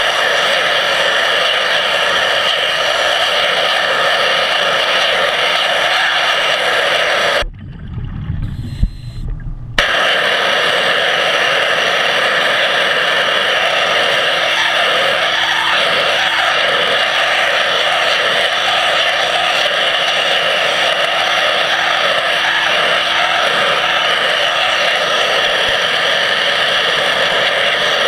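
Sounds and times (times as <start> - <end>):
underwater pressure-washer jet hiss: 0.0 - 7.4, 9.8 - 28.0
faint steady hum: 0.0 - 28.0
low rumbling: 7.4 - 10.1.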